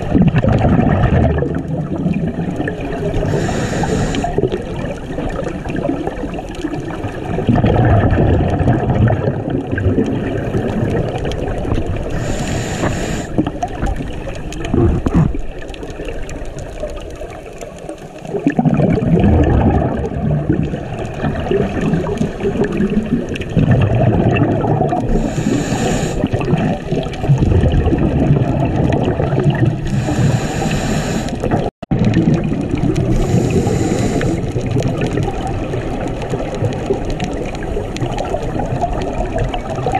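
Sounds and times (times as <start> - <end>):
underwater gurgling rumble: 0.0 - 39.9
short hissing bursts: 3.3 - 4.3, 12.2 - 13.4, 25.1 - 26.2, 29.9 - 31.4, 33.1 - 34.4.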